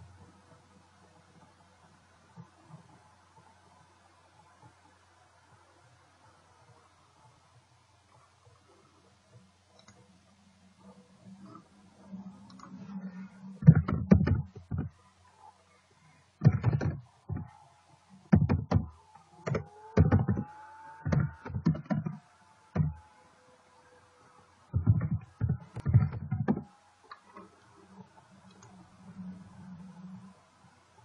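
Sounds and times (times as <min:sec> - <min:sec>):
keyboard typing: 0:13.6 - 0:14.9, 0:16.4 - 0:17.5, 0:18.3 - 0:22.2, 0:22.8 - 0:23.0, 0:24.8 - 0:26.7.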